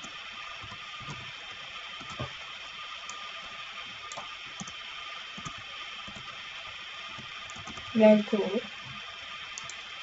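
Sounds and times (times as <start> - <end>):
keyboard keys clicking: 7.5 - 7.9.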